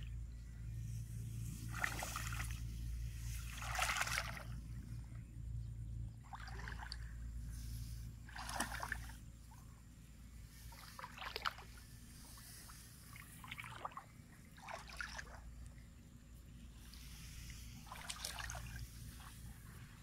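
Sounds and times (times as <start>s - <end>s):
low steady rumble: 0.0s - 20.0s
muddy water splashing and dripping: 1.4s - 5.2s, 6.2s - 9.7s, 10.5s - 15.9s, 16.8s - 20.0s.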